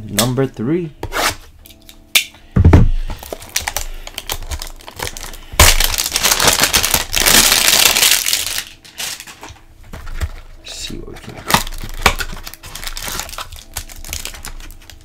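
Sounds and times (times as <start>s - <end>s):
plastic shrink wrap crinkling: 3.1s - 15.0s.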